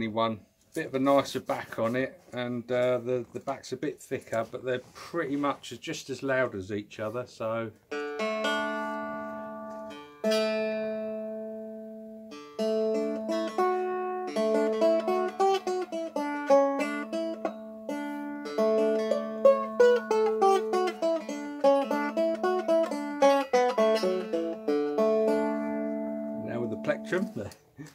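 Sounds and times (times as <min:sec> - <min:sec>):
stick dulcimer strummed: 0:07.9 - 0:27.5.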